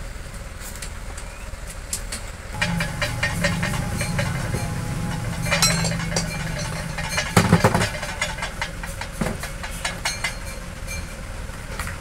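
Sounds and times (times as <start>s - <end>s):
heavy metal knock: 2.6s - 10.6s
metal clicks and clinks: 2.6s - 11.3s
low engine hum: 2.6s - 11.5s.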